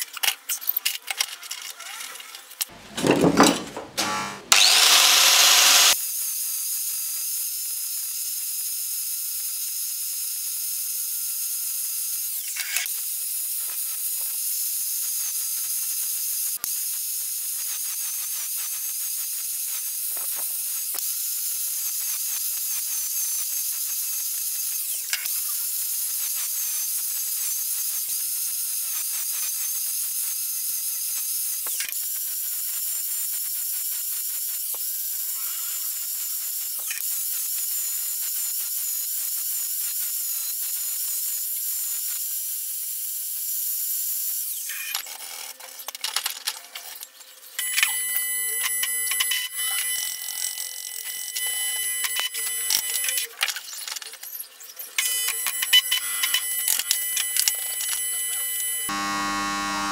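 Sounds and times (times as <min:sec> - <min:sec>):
angle grinder grinding steel: 0:00.0 - 0:06.0, 0:44.5 - 0:59.9.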